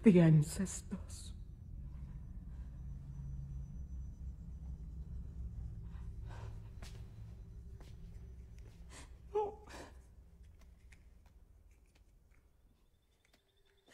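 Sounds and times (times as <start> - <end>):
low rumble: 0.0 - 11.7
woman sobbing quietly: 8.9 - 10.1.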